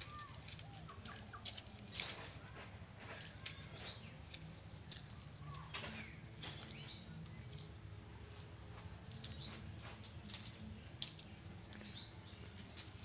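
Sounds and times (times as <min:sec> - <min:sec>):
hens chirping: 0:00.0 - 0:07.7
hens pecking in dry leaves: 0:00.0 - 0:13.0.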